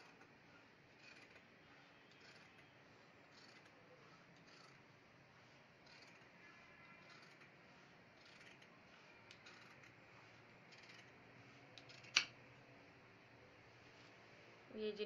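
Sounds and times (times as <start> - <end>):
scissors snipping fabric: 5.8 - 10.0, 10.6 - 12.4.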